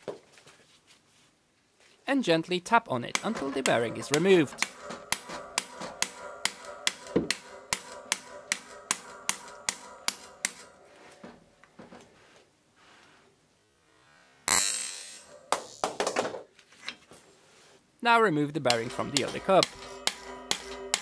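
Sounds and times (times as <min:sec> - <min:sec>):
hammer tapping metal punch: 0:03.1 - 0:11.4, 0:18.7 - 0:21.0.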